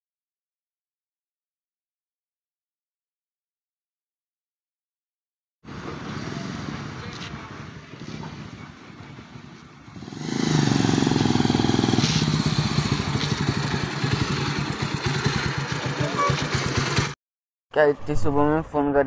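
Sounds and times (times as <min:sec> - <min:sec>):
motorcycle engine running: 0:05.7 - 0:17.2.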